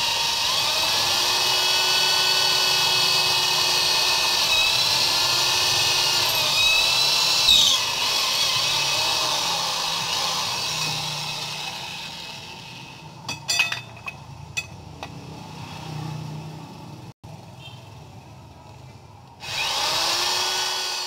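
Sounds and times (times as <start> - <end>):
drill bit screech: 0.0 - 12.9
electric drill boring steel: 0.0 - 13.1, 19.4 - 21.0.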